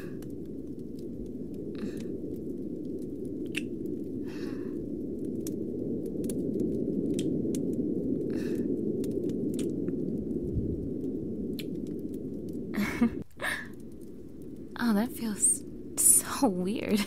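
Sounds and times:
low background rumble: 0.0s - 17.0s
breaths: 1.7s - 2.3s, 4.2s - 5.0s, 8.2s - 8.9s, 13.4s - 13.8s.

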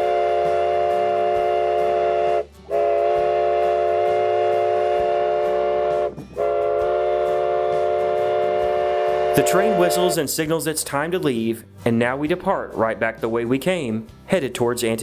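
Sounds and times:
steam locomotive whistle blasts: 0.0s - 10.2s.

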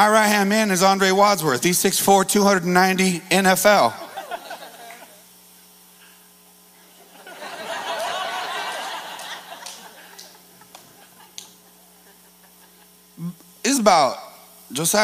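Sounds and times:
electrical hum: 0.0s - 15.0s
congregation laughing: 3.9s - 5.3s, 7.0s - 13.1s.

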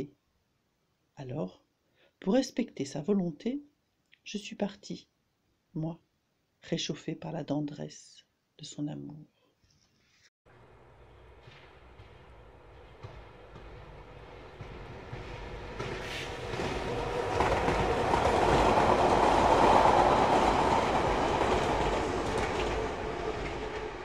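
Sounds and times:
train passing: 10.5s - 24.0s.

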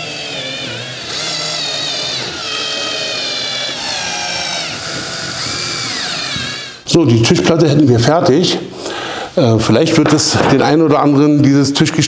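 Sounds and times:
drill driving screws into wood: 0.0s - 6.8s.

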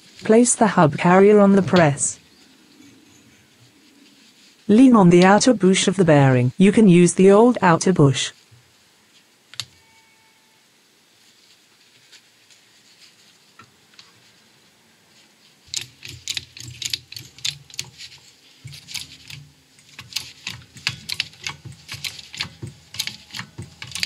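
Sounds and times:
hydraulic press clicking and creaking: 15.7s - 24.0s.

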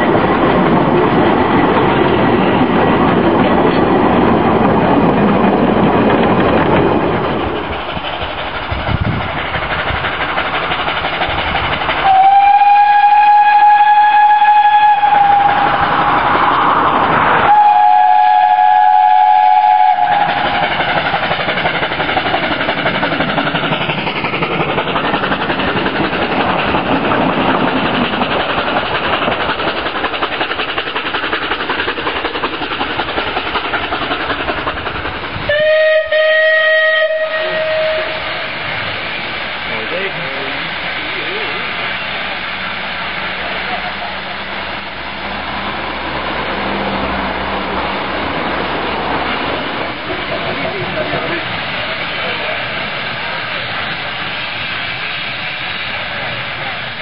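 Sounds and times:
train running noise: 0.0s - 57.0s
steam locomotive whistle blasts: 12.0s - 16.2s, 17.4s - 20.7s, 35.5s - 38.6s
lower-pitched steam whistle: 12.0s - 16.6s, 17.4s - 20.8s, 35.5s - 38.7s.

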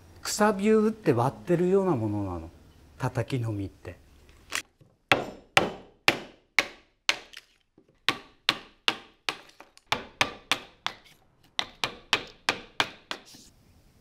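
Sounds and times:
hammer striking chisel: 5.1s - 7.4s, 8.1s - 13.3s.

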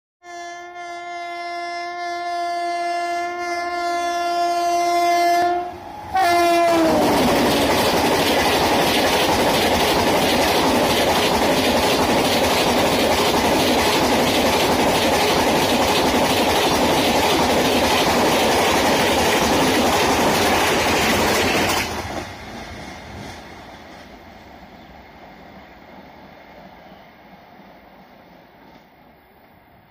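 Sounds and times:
locomotive horn blast: 0.2s - 7.2s
train coaches rushing past: 5.5s - 29.9s.

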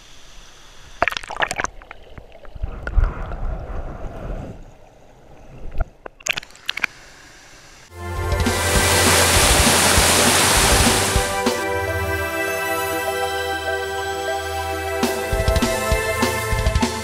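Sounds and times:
muffled underwater stream gurgling: 8.4s - 11.5s.

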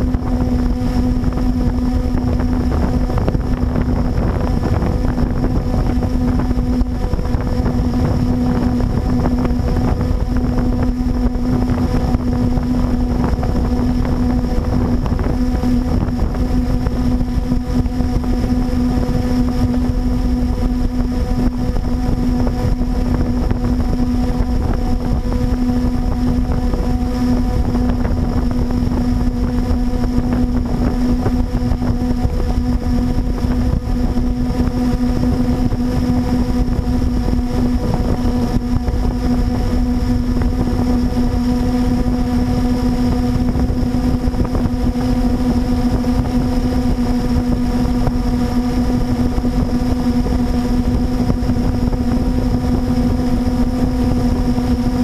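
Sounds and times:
quadcopter motors humming: 0.0s - 55.0s
wind on microphone: 0.0s - 55.0s.

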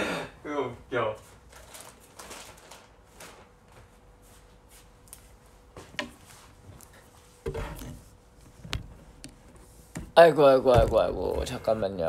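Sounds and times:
rustling and light knocks: 3.2s - 11.8s.

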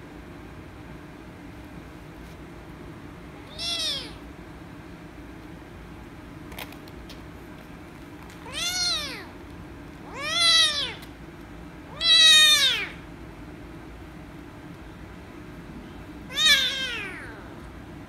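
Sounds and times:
kitten meowing: 3.4s - 4.2s, 8.4s - 9.3s, 10.0s - 11.0s, 11.9s - 13.0s, 16.3s - 17.5s.

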